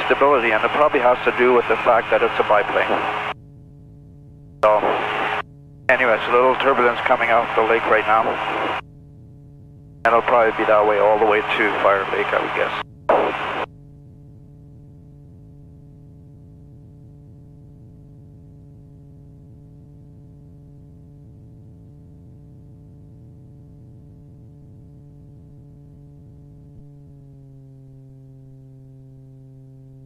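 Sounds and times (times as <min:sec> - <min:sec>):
aircraft engine and propeller droning: 0:00.0 - 0:03.3, 0:04.6 - 0:08.8, 0:10.1 - 0:13.6.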